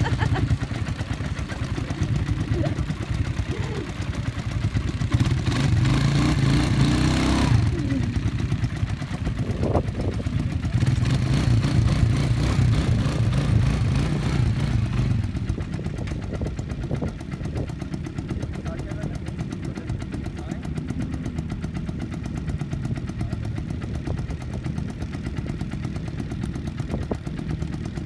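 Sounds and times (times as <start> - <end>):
quad bike engine revving: 0.0 - 28.0.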